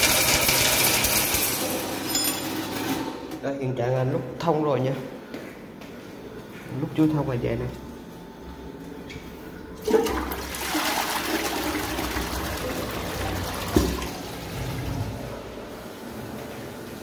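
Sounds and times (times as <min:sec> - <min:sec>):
toilet flushing: 0:00.0 - 0:03.4, 0:09.8 - 0:17.0.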